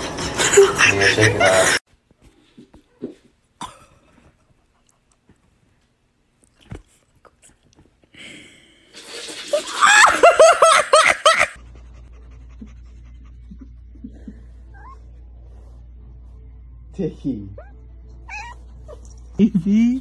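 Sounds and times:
person laughing hard: 0:00.3 - 0:01.8, 0:09.7 - 0:11.6.

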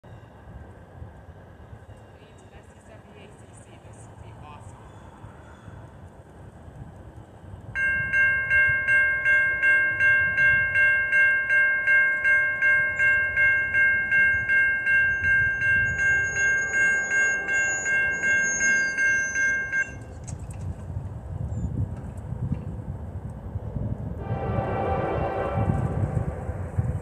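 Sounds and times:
electronic crossing bell ringing: 0:07.8 - 0:20.0.

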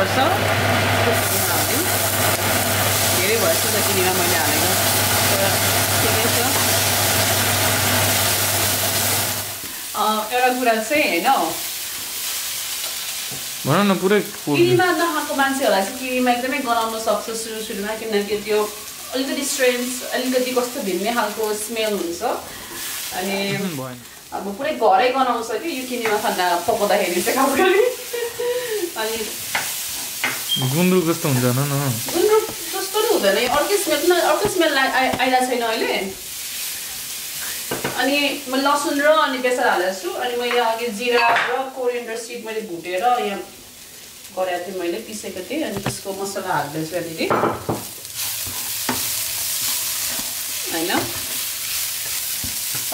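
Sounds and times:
food sizzling in a pan: 0:00.0 - 0:52.9
person singing: 0:23.5 - 0:24.0, 0:30.6 - 0:32.4.

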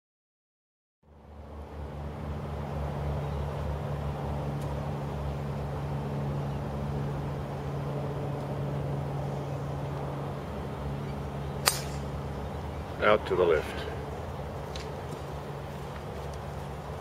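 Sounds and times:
small engine humming: 0:01.1 - 0:17.0.

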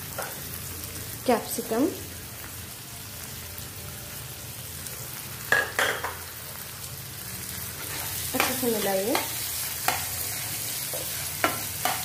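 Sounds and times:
vegetables sizzling in hot oil: 0:00.0 - 0:12.0
utensils clanking against pan: 0:05.5 - 0:06.2, 0:07.8 - 0:12.0.

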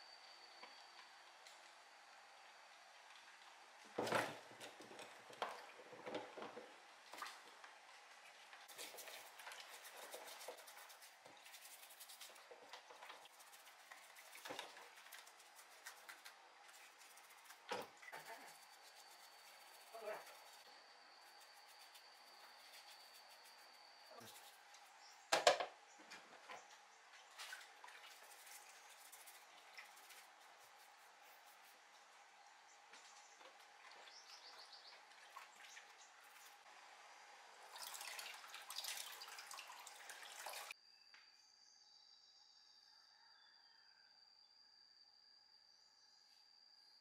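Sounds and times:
water sloshing and dripping: 0:03.0 - 0:20.7, 0:26.1 - 0:30.8, 0:32.9 - 0:36.7, 0:37.6 - 0:40.8
water splashing in a plastic tub: 0:04.2 - 0:07.6, 0:27.1 - 0:28.8, 0:37.6 - 0:40.8
brush scrubbing parts: 0:08.6 - 0:25.0, 0:27.4 - 0:32.0.

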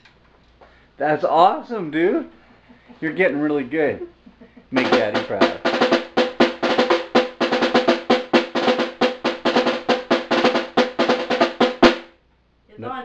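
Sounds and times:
snare drum played with sticks: 0:04.7 - 0:12.2.

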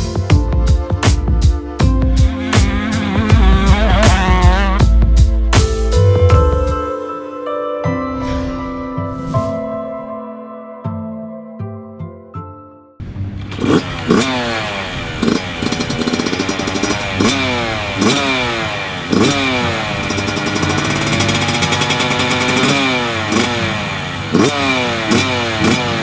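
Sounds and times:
two-stroke engine revving: 0:02.1 - 0:05.0, 0:13.4 - 0:26.0.

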